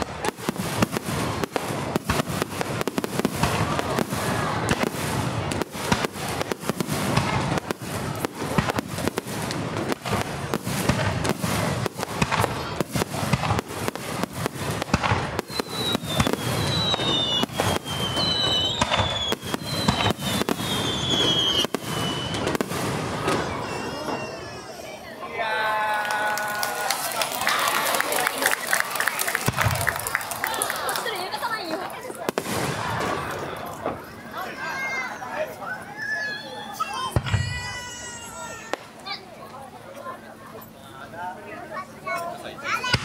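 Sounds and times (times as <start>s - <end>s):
fireworks bangs and crackling: 0.0s - 25.0s, 26.2s - 35.1s, 36.2s - 39.4s, 41.7s - 43.0s
fireworks whistles sliding down: 15.4s - 24.9s.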